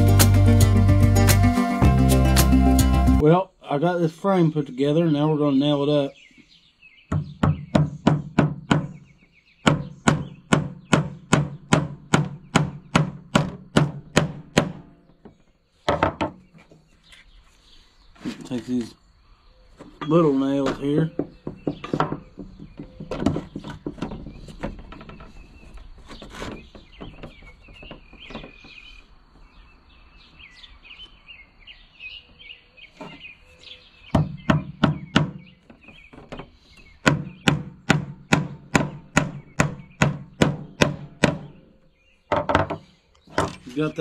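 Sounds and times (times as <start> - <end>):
faint birds chirping: 3.2 - 44.0
hammering nails into wood: 7.1 - 16.4, 20.0 - 25.4, 34.1 - 41.7, 42.3 - 43.8.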